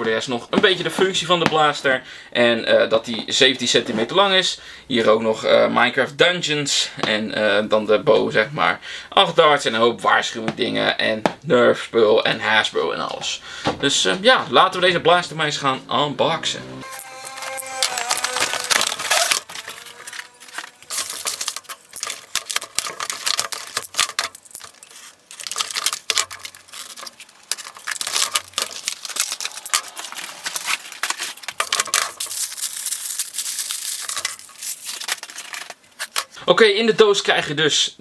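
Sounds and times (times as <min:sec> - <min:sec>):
cardboard rustling and scraping: 0:16.8 - 0:36.4
plastic parts clicking and clattering: 0:17.3 - 0:36.4.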